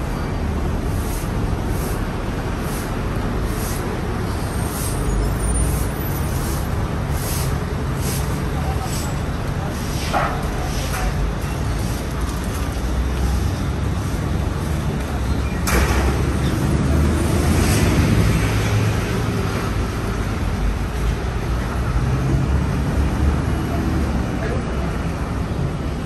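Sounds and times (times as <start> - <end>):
heavy vehicle engine hum: 0.0 - 26.0
street traffic passing: 0.0 - 26.0.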